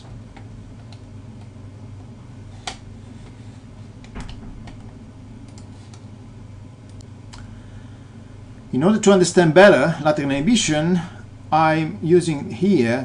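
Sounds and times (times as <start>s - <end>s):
low hum: 0.0s - 13.0s
faint clicks: 5.4s - 6.0s.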